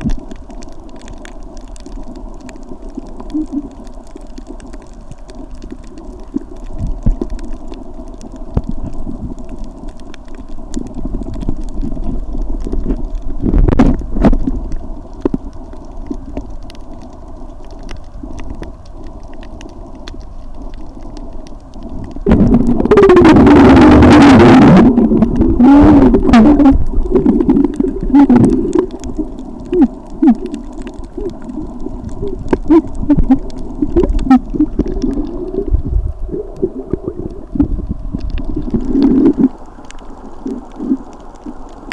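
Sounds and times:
small scattered clicks: 0:00.0 - 0:22.3
muffled underwater rumble: 0:00.0 - 0:41.9.

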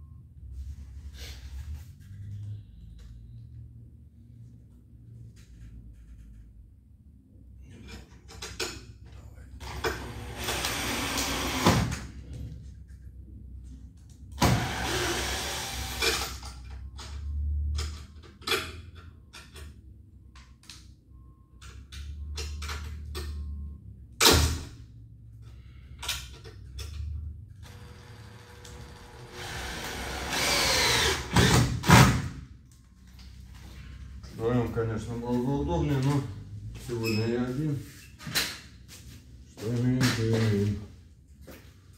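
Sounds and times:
drill driving screws: 0:09.6 - 0:11.9, 0:14.4 - 0:16.4, 0:27.7 - 0:32.1.

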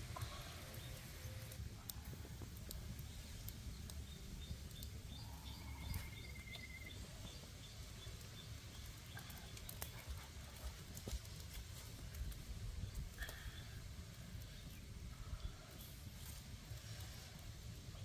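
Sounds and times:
wood fire crackling and popping: 0:00.0 - 0:18.0
faint high chirps: 0:04.0 - 0:07.1.

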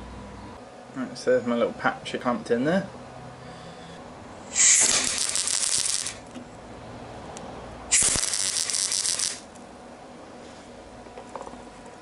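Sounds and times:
welder crackling: 0:04.5 - 0:06.3, 0:07.9 - 0:09.6.

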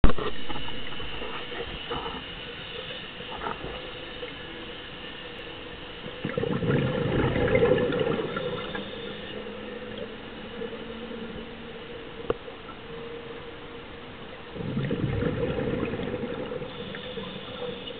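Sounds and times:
steady hum: 0:00.0 - 0:17.9
underwater breath bubbling: 0:06.0 - 0:10.1, 0:14.5 - 0:17.9.

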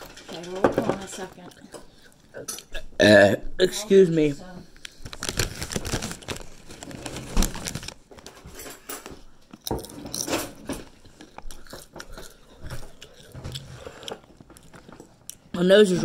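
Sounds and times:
chewing crunchy chips: 0:09.5 - 0:15.6.

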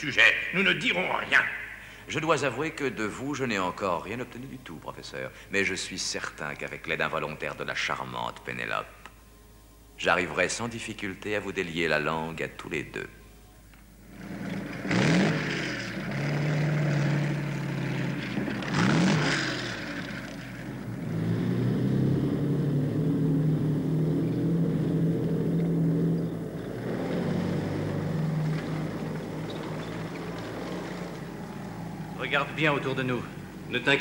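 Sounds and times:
low engine hum: 0:14.0 - 0:34.0
vehicle whooshing passes: 0:14.2 - 0:33.8.

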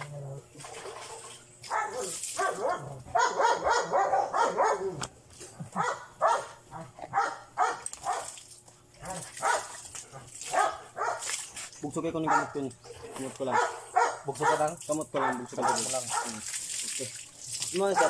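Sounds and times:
dog barking and whining: 0:01.7 - 0:05.1, 0:05.7 - 0:08.2, 0:09.0 - 0:09.7, 0:10.5 - 0:11.2, 0:12.2 - 0:16.3.

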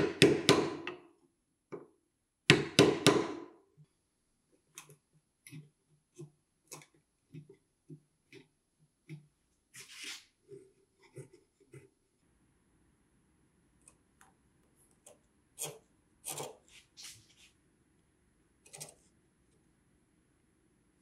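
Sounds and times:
mallet striking chisel: 0:00.0 - 0:01.0, 0:02.5 - 0:03.5
chisel scraping wood: 0:15.6 - 0:17.2.

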